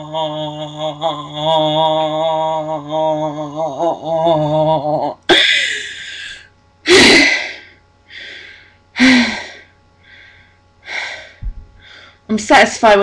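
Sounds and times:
woman gasping breaths: 5.3 - 12.3.

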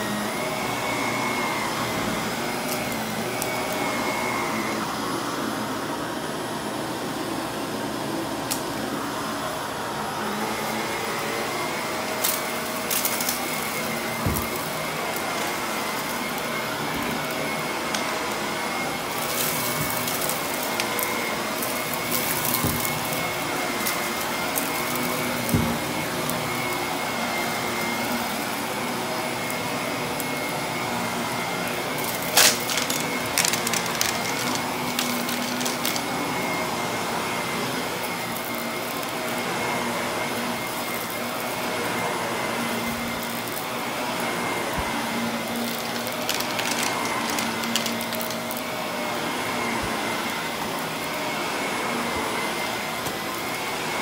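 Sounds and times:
vacuum cleaner running: 0.0 - 54.0
debris crackling in vacuum: 32.0 - 36.2, 45.6 - 48.6.

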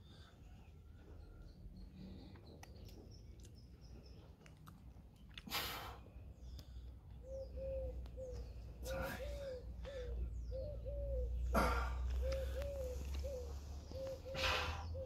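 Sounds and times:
dove cooing: 7.2 - 15.0.

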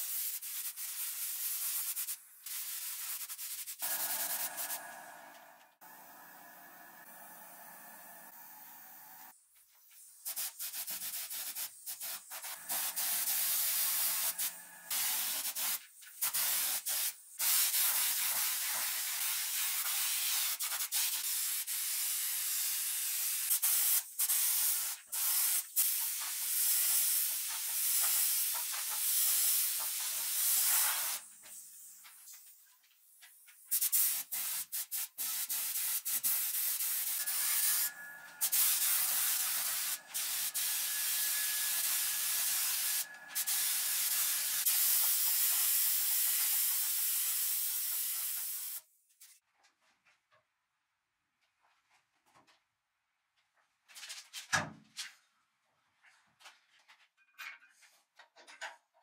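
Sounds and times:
pressurised spray hissing: 0.0 - 9.3, 10.2 - 20.4, 26.4 - 31.3, 33.7 - 48.8.

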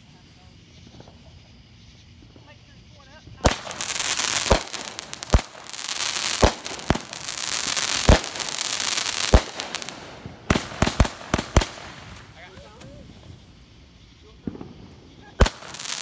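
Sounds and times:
firework sparks hissing: 0.0 - 16.0
firework bangs: 3.2 - 16.0
firework cracks: 3.4 - 16.0.

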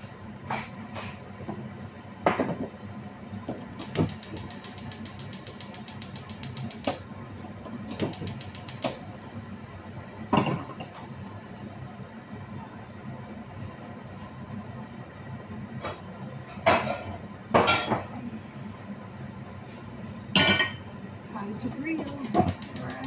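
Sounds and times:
stove spark igniter clicking: 3.8 - 7.0, 7.9 - 9.0, 22.1 - 23.0.

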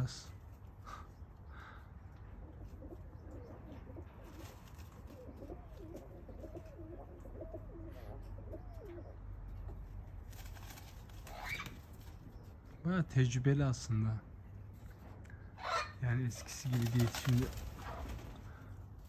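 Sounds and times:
pigeon cooing: 1.6 - 10.0.

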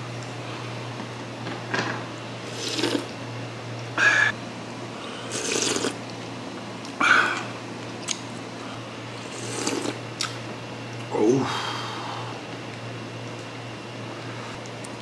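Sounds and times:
steady low hum: 0.0 - 15.0
man slurping soup: 2.5 - 3.1, 5.2 - 6.0, 9.2 - 10.0.

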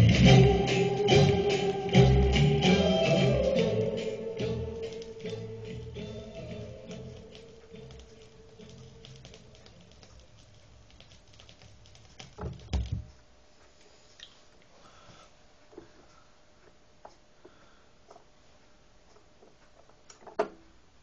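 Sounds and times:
song on a record player: 0.0 - 13.0
record surface hiss: 0.0 - 21.0.

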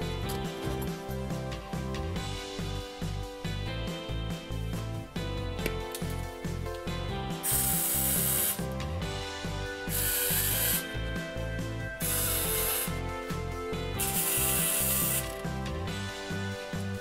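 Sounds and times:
background music with beat: 0.0 - 17.0
welding arc bursts: 7.5 - 8.6, 14.0 - 15.4.

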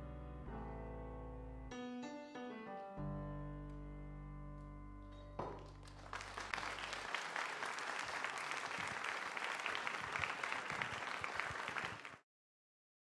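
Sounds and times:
held piano chord: 0.0 - 6.5
audience applauding: 5.6 - 12.2.

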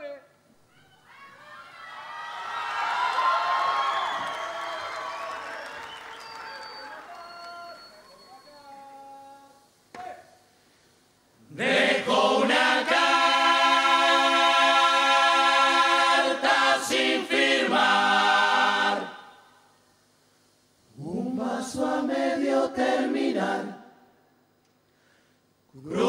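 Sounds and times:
chorus singing a cappella: 11.4 - 19.6, 20.9 - 24.1, 25.8 - 26.0.

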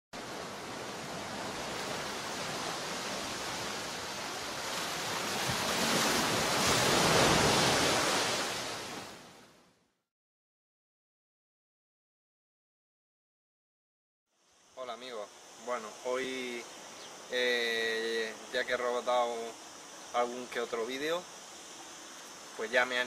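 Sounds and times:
sea waves washing: 0.2 - 9.6.

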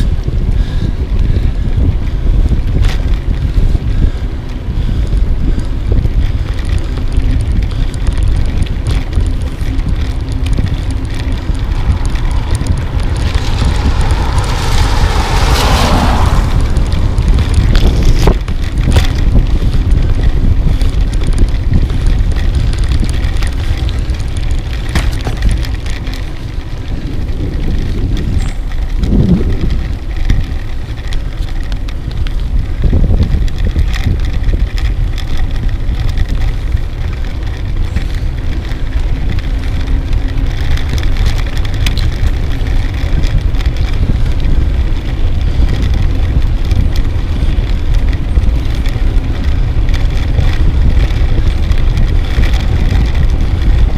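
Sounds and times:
tyre and road rumble: 0.0 - 53.9
wind buffeting microphone: 0.0 - 53.9
camera knocks and rattles: 17.2 - 26.4.

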